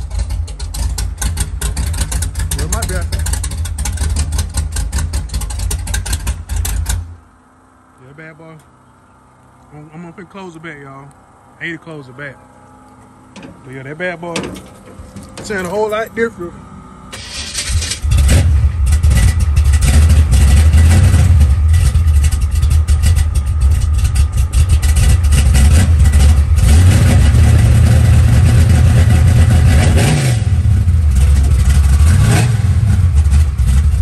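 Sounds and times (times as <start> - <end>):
loud car engine rumbling: 0.0 - 34.0.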